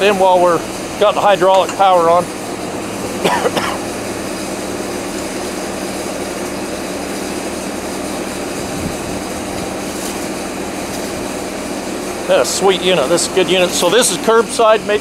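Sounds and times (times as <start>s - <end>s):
diesel engine running: 0.0s - 15.0s
hydraulic hose reel winding: 4.0s - 15.0s.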